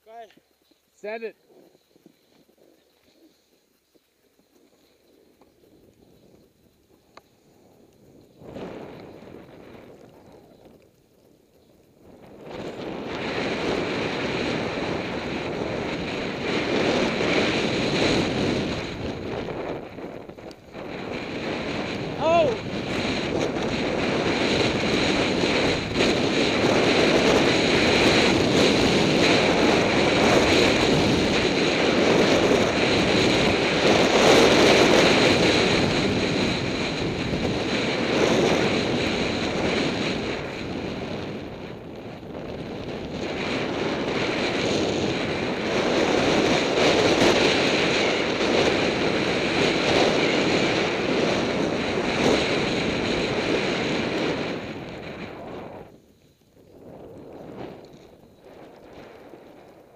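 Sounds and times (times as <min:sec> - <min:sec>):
wind rushing over microphone: 0:00.0 - 0:59.9
skis hissing through snow: 0:00.6 - 0:09.2.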